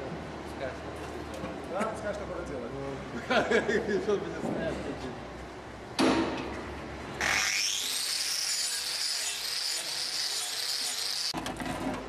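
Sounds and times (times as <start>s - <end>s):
angle grinder whining: 7.2s - 11.4s.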